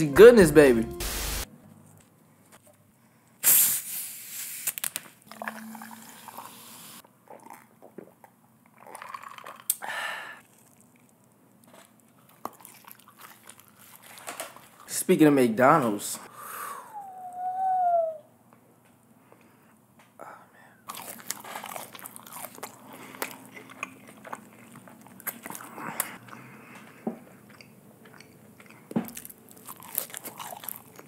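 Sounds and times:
wet mouth eating sounds: 0:05.3 - 0:14.8, 0:20.8 - 0:31.0.

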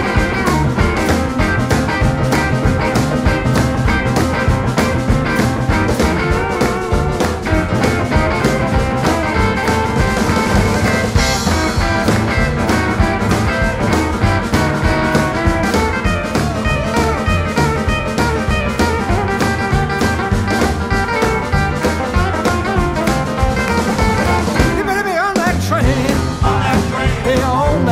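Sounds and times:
blues band playing: 0:00.0 - 0:27.9.

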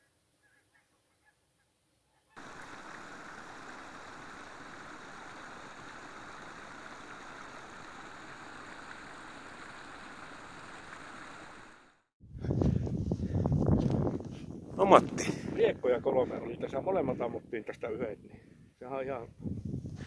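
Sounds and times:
brook running over rocks: 0:02.4 - 0:12.0.

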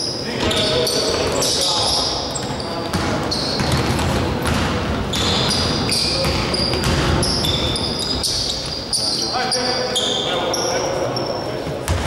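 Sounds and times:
sneakers squeaking on court: 0:00.0 - 0:12.0
basketball dribbling: 0:02.4 - 0:08.8.

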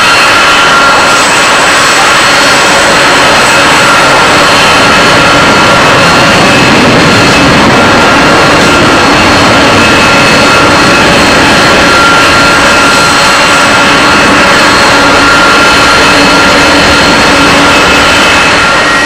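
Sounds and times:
high engine whine: 0:00.0 - 0:19.0
jet engines running: 0:00.0 - 0:19.0.

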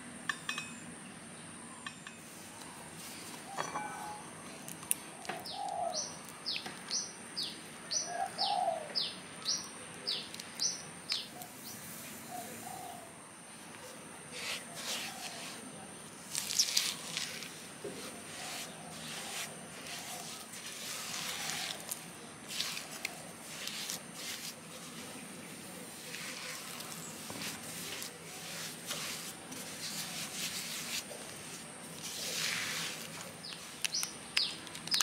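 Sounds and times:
low bird coos: 0:05.1 - 0:06.2, 0:08.0 - 0:09.0, 0:12.2 - 0:13.2
bird chirping: 0:05.1 - 0:13.1, 0:33.4 - 0:35.0.

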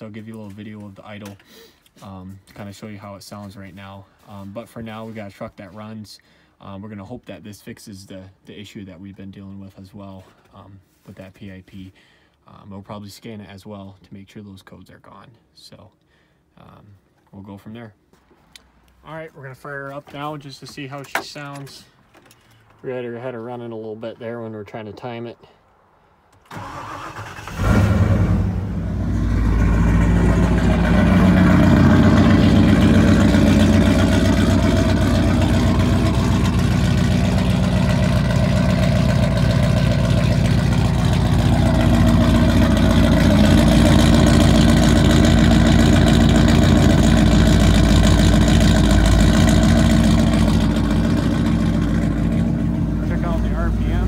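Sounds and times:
engine starting and idling: 0:26.4 - 0:54.0.

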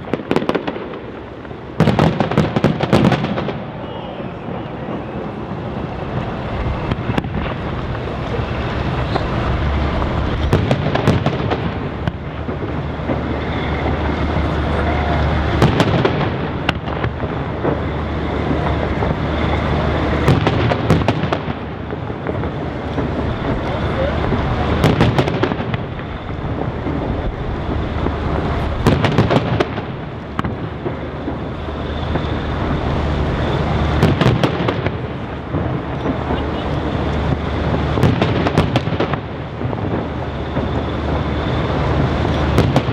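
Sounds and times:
continuous rumble: 0:00.0 - 0:42.9
firework shells bursting: 0:00.0 - 0:42.9
sharp firework bangs: 0:00.0 - 0:42.9.

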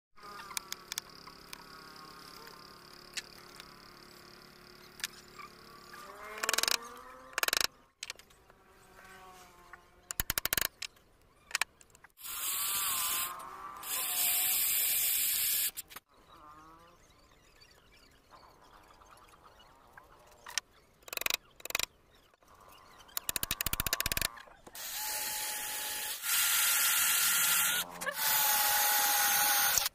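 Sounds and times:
electric drill boring into wood: 0:12.2 - 0:15.8, 0:24.8 - 0:29.9.

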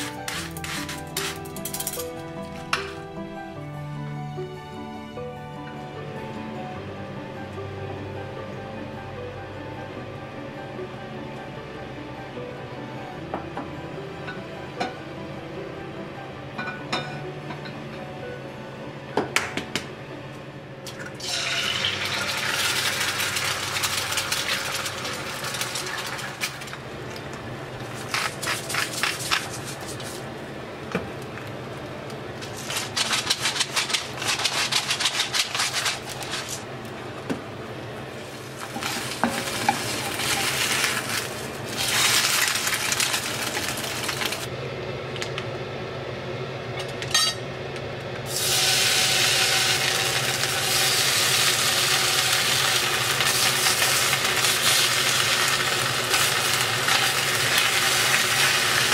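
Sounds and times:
food sizzling in frying pan: 0:21.2 - 0:26.7, 0:38.2 - 0:44.5, 0:48.3 - 0:58.9.

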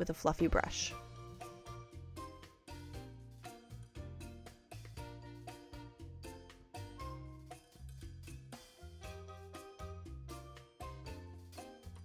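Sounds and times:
light background music: 0:00.0 - 0:12.0.

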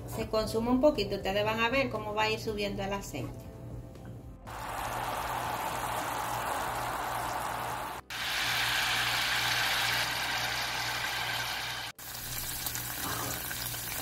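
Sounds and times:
coconut cream boiling and sizzling: 0:04.5 - 0:14.0.

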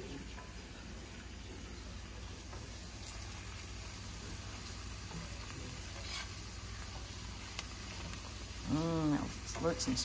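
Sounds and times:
roux sizzling in a skillet: 0:00.0 - 0:10.0
whisk scraping a pan: 0:04.6 - 0:08.4.

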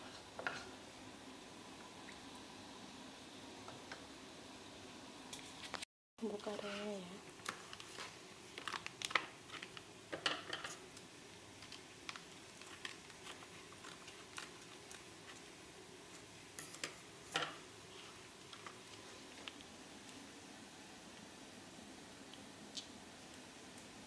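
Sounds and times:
plastic sachet crinkling: 0:07.4 - 0:09.9, 0:11.6 - 0:15.4.

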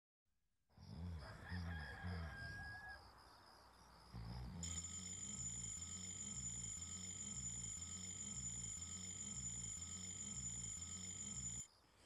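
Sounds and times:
rooster crowing: 0:01.0 - 0:03.1
high electronic alarm tone: 0:04.6 - 0:11.7.

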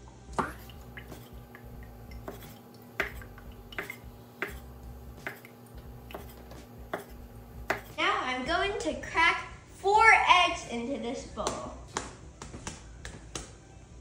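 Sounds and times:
cleaver chopping on wooden board: 0:02.3 - 0:05.5, 0:06.1 - 0:08.0.

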